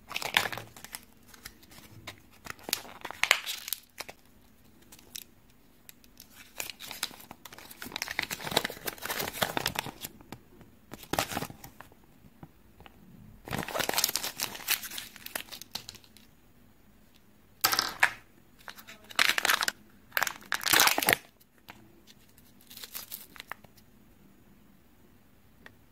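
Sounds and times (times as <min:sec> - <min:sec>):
packaging crinkling and tearing: 0:00.1 - 0:05.3, 0:06.0 - 0:10.2, 0:10.9 - 0:11.9, 0:13.5 - 0:16.3, 0:18.6 - 0:21.4, 0:22.1 - 0:23.7.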